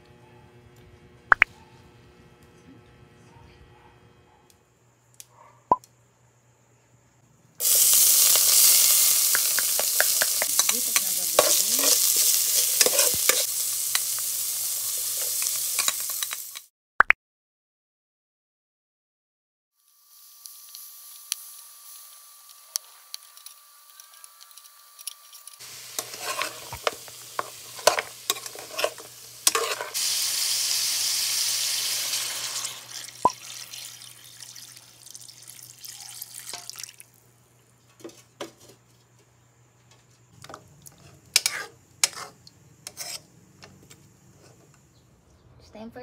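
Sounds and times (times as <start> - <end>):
soup simmering: 7.6 - 10.7, 25.6 - 37.0
broth pouring into pan: 7.6 - 12.5, 29.9 - 37.1
meat and onions sizzling: 7.6 - 16.7, 19.8 - 37.0
utensil clicking on pan: 8.3 - 14.3, 15.2 - 16.7, 26.0 - 29.9.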